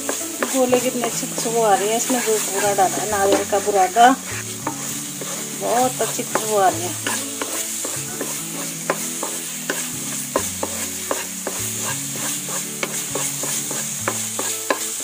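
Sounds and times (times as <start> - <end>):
spatula clicking against pan: 0.0 - 1.2, 6.3 - 15.0
sizzling hiss: 0.0 - 15.0
spatula scraping a pan: 0.0 - 15.0.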